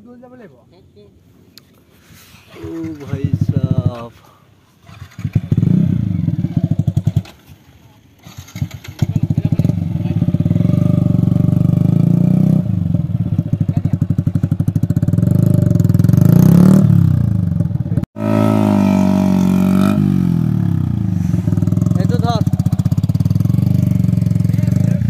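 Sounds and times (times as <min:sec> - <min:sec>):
motorcycle engine revving: 0:02.6 - 0:04.0, 0:04.8 - 0:07.6, 0:08.2 - 0:25.0.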